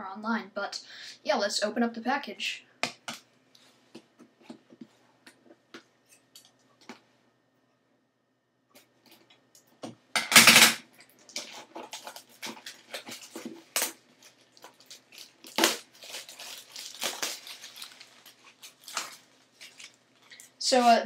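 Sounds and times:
plastic wrapping crackling: 0:10.9 - 0:20.9
scissors cutting wrapping: 0:11.4 - 0:20.0.

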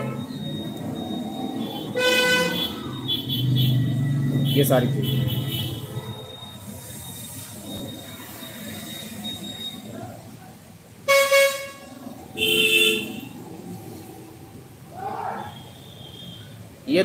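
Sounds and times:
vehicle horn honks: 0:02.0 - 0:03.8, 0:11.1 - 0:11.8, 0:12.4 - 0:13.3.

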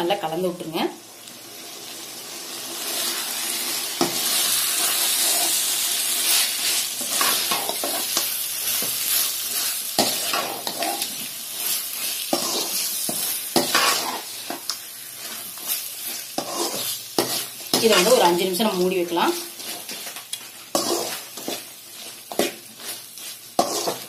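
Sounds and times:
chicken sizzling in oil: 0:00.7 - 0:24.0
metal ladle stirring and scraping: 0:15.2 - 0:18.2, 0:19.4 - 0:24.0.

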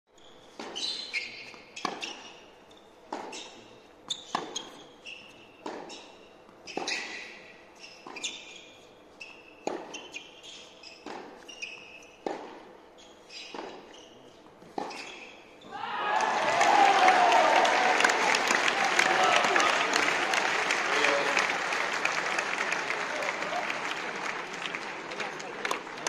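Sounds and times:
tennis ball struck by racket: 0:09.6 - 0:10.0, 0:12.2 - 0:12.6.

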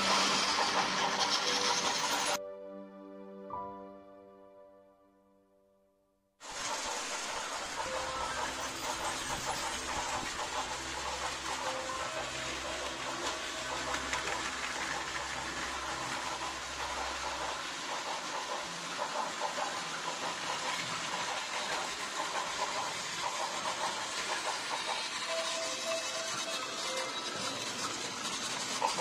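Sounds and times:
toy train motors whirring: 0:00.0 - 0:02.4, 0:06.4 - 0:29.0.

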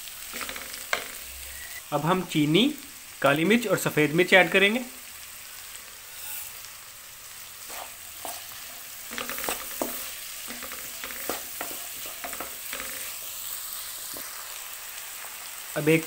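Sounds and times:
vegetables sizzling in oil: 0:00.0 - 0:16.0
spatula scraping and tapping pan: 0:00.3 - 0:01.2, 0:07.7 - 0:13.2.

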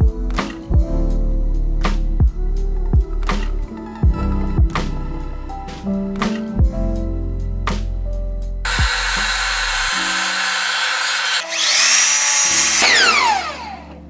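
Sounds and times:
background music: 0:00.0 - 0:14.0
power tool running: 0:08.7 - 0:14.0.

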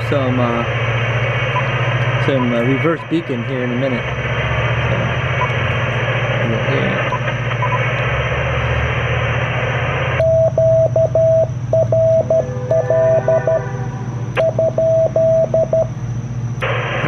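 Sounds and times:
radio static hiss: 0:00.0 - 0:11.2, 0:16.6 - 0:17.0
low hum: 0:00.0 - 0:17.0
morse code beeps: 0:01.5 - 0:03.2, 0:07.1 - 0:07.8, 0:10.2 - 0:13.7, 0:14.4 - 0:16.0.

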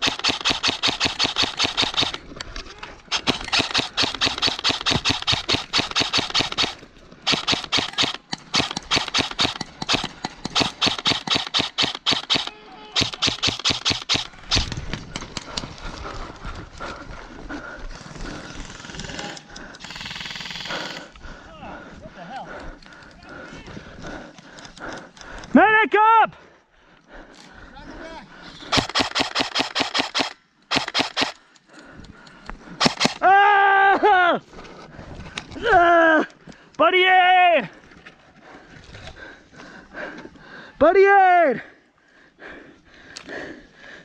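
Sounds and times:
airsoft rifle full-auto bursts: 0:00.0 - 0:02.2, 0:03.1 - 0:14.8, 0:18.6 - 0:21.1, 0:28.7 - 0:31.4, 0:32.8 - 0:33.2.

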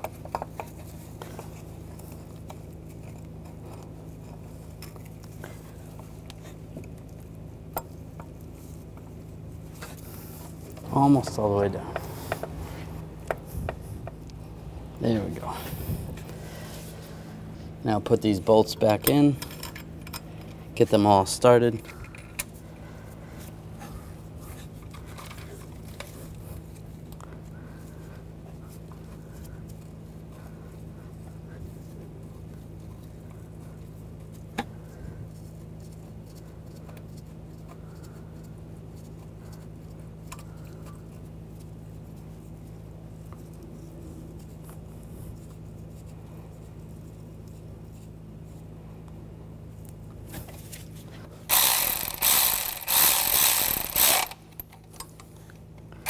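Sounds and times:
low hum: 0:00.0 - 0:56.0
cordless ratchet bursts: 0:51.5 - 0:54.8.

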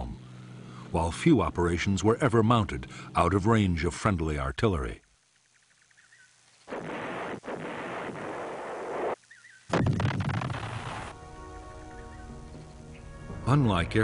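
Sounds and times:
music: 0:11.1 - 0:14.0.

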